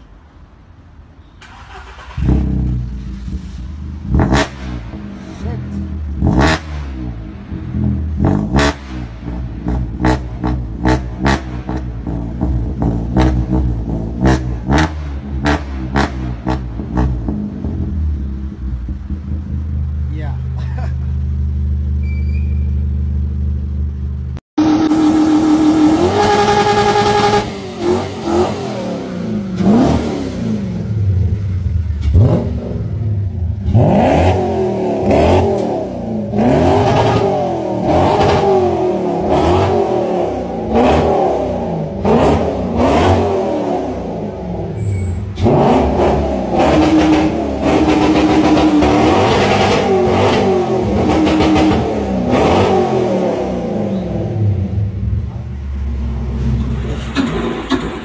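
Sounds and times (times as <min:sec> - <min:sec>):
car engine revving: 0:01.4 - 0:20.0, 0:24.0 - 0:58.0
car engine idling: 0:16.3 - 0:26.0.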